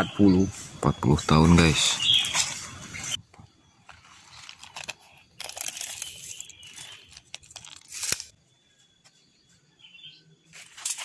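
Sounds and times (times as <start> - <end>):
rustling in dry leaf litter: 3.9 - 8.3
faint high chirp: 5.7 - 11.0.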